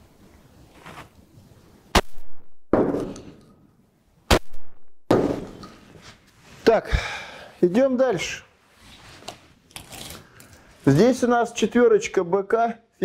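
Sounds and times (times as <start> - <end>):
shotgun shots echoing indoors: 2.0 - 3.1, 4.3 - 5.4.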